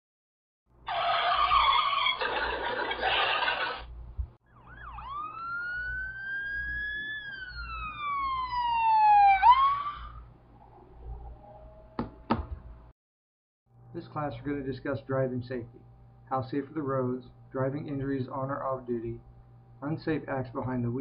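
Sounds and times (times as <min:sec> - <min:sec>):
emergency siren wailing: 0:04.4 - 0:12.3.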